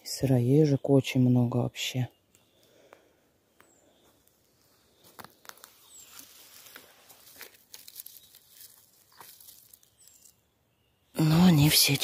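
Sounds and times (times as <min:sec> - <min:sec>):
twigs and leaves crackling: 0:02.3 - 0:10.5, 0:11.2 - 0:12.0.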